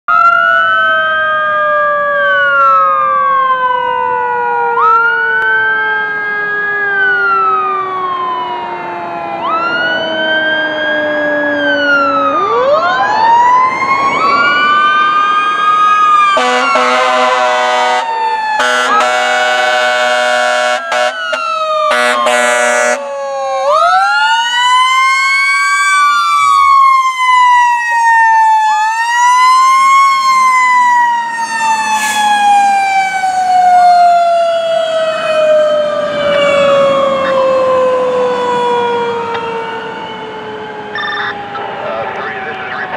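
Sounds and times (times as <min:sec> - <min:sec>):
second siren rising and falling: 0:00.1 - 0:42.9
air horn blasts: 0:16.4 - 0:23.0.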